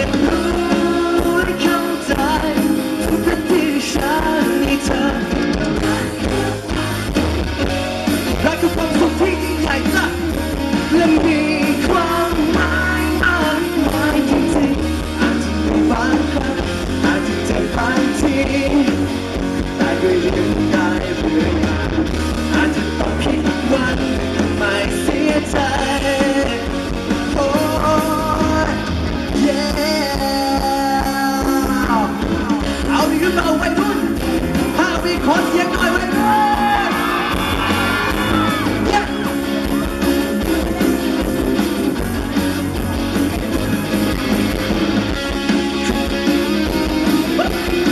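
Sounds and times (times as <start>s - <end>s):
man singing through a microphone: 0.0s - 7.2s, 8.3s - 39.3s
drums: 0.0s - 47.9s
live rock band playing: 0.0s - 47.9s.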